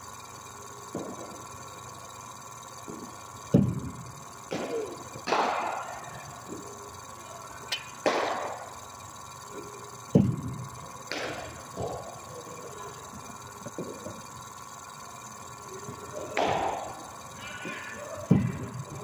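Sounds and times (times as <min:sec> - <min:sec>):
steady machine hum: 0:00.0 - 0:19.0
bowling machine thuds: 0:03.6 - 0:03.9, 0:10.1 - 0:12.0.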